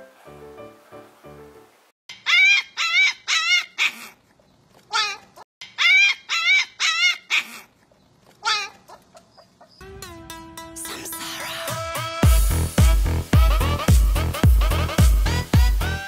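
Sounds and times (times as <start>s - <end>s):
puppy yelping: 8.4s - 9.8s.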